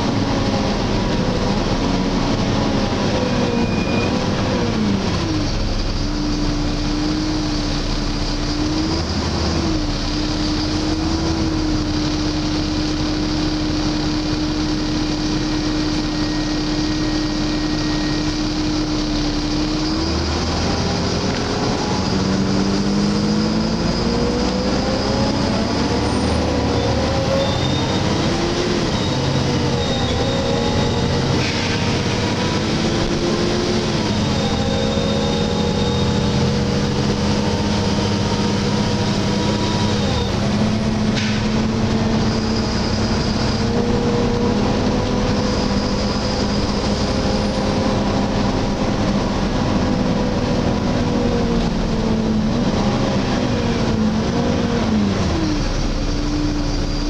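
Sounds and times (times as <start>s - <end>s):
bus engine drone: 0.0s - 57.0s
faint high whine: 13.5s - 20.6s.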